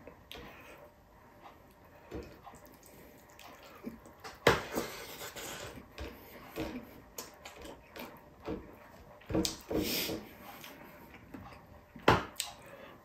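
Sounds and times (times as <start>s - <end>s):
chewing and lip smacks: 2.4s - 4.4s.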